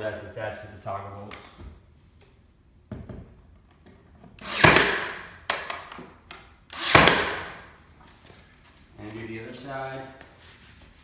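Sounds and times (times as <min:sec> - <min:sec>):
nail gun firing: 0:04.4 - 0:06.0, 0:06.7 - 0:07.6.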